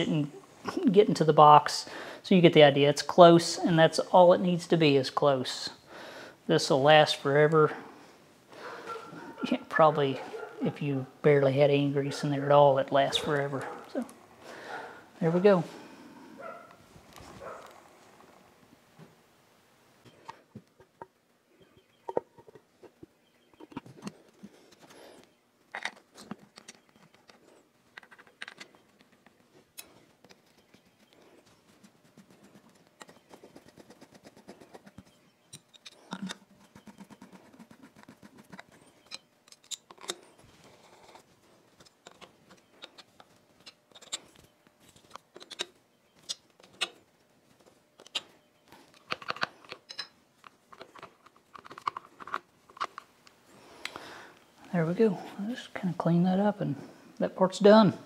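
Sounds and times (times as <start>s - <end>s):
metal parts clicking and scraping: 25.7s - 29.9s, 35.5s - 37.2s, 38.5s - 47.0s, 48.8s - 53.1s.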